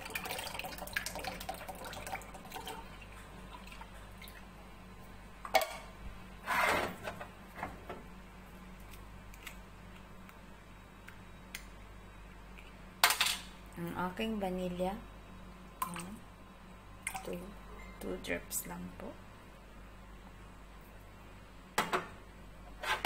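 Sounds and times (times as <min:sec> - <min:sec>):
milk pouring into a bowl: 0:00.0 - 0:04.4.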